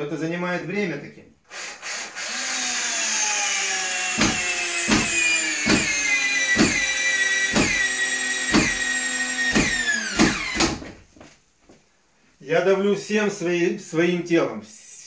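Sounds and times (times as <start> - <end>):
electric drill motor whine: 1.5 - 10.8.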